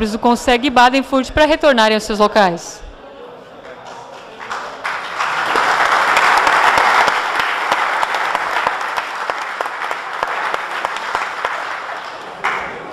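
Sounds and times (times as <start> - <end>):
audience applauding: 3.9 - 12.9.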